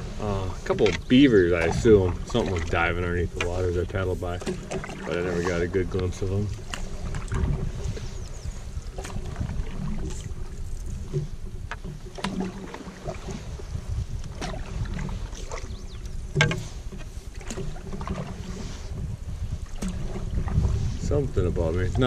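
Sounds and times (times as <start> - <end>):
paddle strokes: 0.0 - 22.0
paddle knocking on canoe hull: 4.3 - 5.2, 8.8 - 13.4, 14.2 - 18.6.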